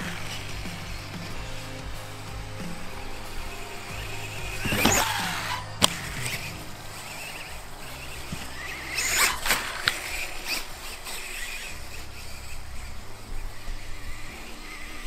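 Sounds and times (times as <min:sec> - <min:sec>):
electric motor whining and revving: 0:00.0 - 0:15.0.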